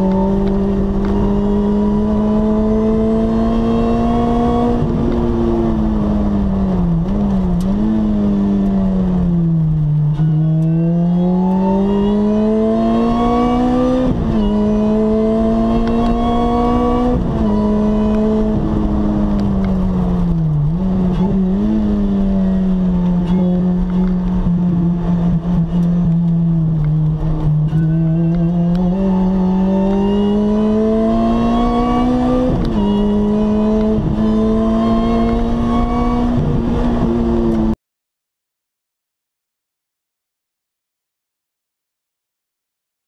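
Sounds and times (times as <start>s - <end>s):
car engine revving at speed: 0.0s - 37.8s.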